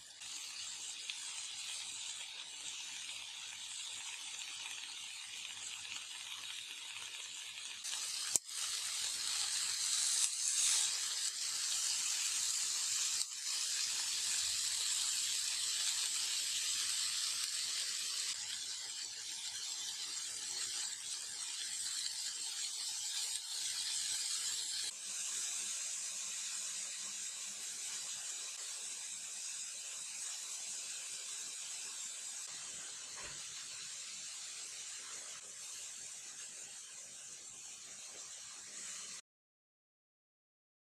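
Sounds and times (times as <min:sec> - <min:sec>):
kebabs sizzling in grill pan: 0:00.0 - 0:39.2.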